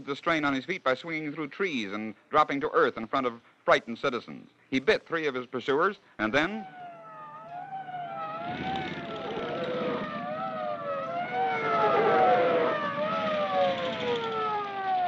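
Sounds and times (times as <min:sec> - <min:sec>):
police siren wailing: 0:06.4 - 0:15.0
low vehicle rumble: 0:06.7 - 0:15.0.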